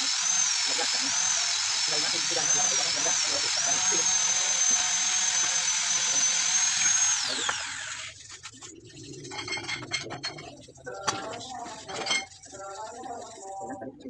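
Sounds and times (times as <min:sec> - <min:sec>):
power tool whining and spinning down: 0:00.0 - 0:08.2.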